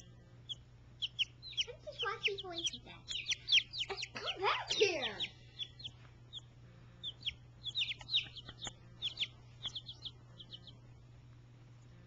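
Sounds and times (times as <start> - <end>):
chicks peeping: 0.0 - 11.1.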